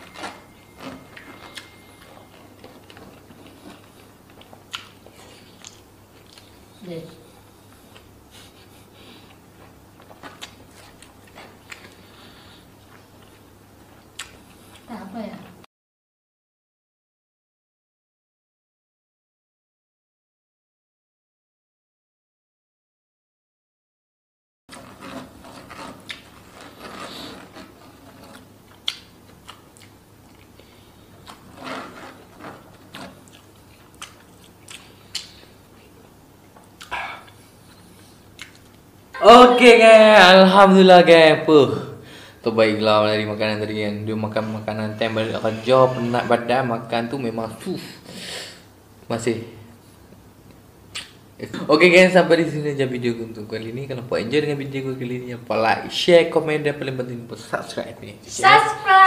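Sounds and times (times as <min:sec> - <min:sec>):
man chewing: 0:00.0 - 0:06.8, 0:07.4 - 0:14.9, 0:24.7 - 0:39.0, 0:49.8 - 0:51.3.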